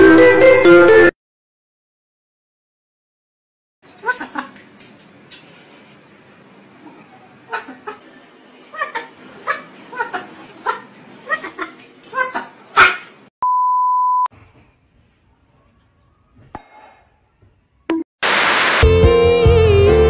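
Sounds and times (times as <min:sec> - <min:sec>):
cockatoo calls: 0:06.8 - 0:13.2
loud burst of noise: 0:18.2 - 0:19.0.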